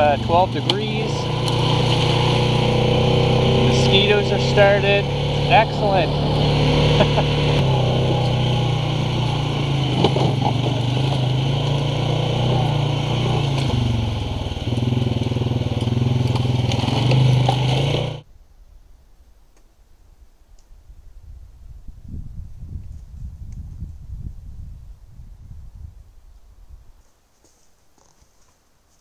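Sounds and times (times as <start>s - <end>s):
atv engine running: 0.0s - 18.3s.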